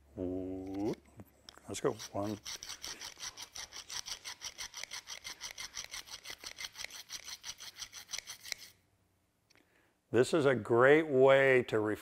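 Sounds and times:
cutter rasping on diamond hone: 0.6s - 8.8s.

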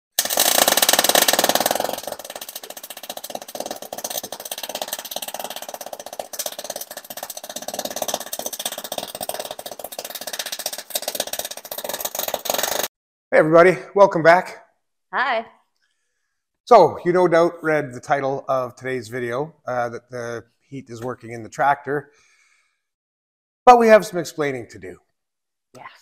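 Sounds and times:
arc welding crackle: 0.1s - 12.9s.

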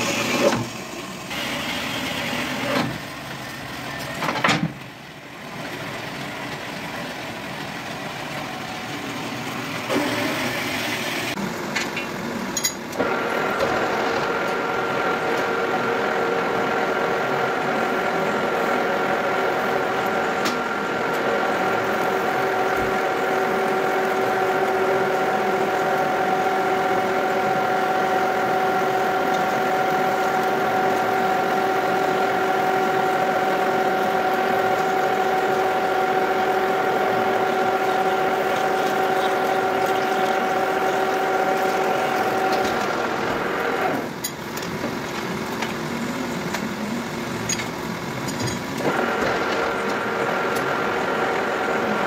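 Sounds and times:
drill whine: 0.0s - 3.0s, 9.8s - 11.4s
metal lathe humming: 0.0s - 3.9s, 12.6s - 52.0s.

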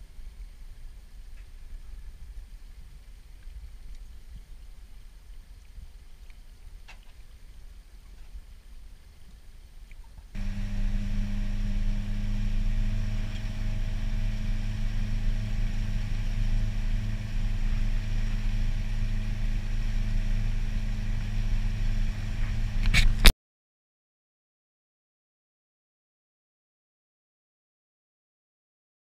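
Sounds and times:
motorboat engine droning: 10.4s - 23.3s
brief crackle: 22.4s - 23.3s.

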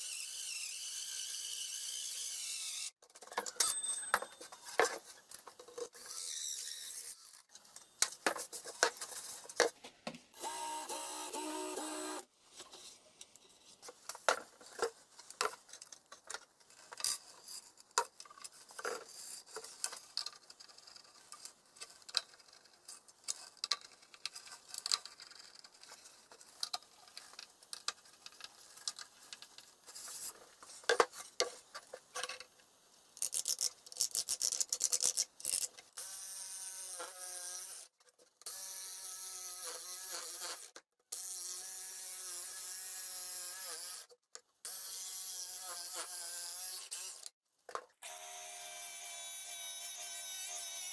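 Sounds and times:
jigsaw cutting wood: 10.4s - 12.3s.

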